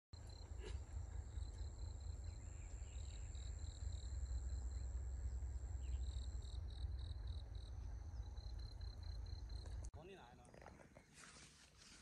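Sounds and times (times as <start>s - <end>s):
insect pulsing chirp: 1.3s - 9.8s.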